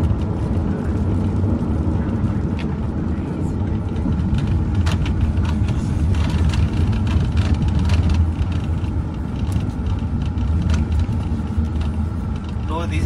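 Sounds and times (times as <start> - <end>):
car driving at low speed: 0.0 - 13.0.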